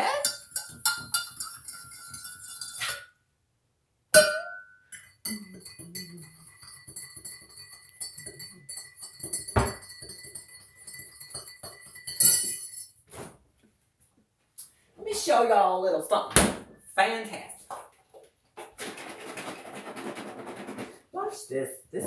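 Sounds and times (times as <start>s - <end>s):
spoon knocking mug: 0.2s - 2.9s, 4.2s - 12.7s
spoon clinking against ceramic mug: 0.2s - 3.1s, 4.2s - 12.9s.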